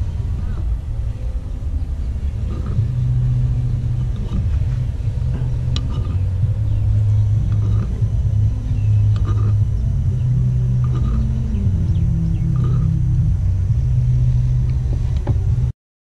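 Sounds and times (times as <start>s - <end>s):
low rumble with hum: 0.0s - 15.8s.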